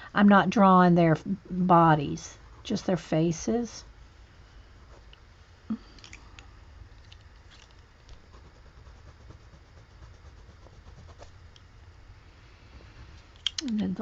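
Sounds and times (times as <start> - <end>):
low steady hum: 0.0 - 14.0
colored pencil scratching paper: 2.3 - 2.9, 8.1 - 11.5.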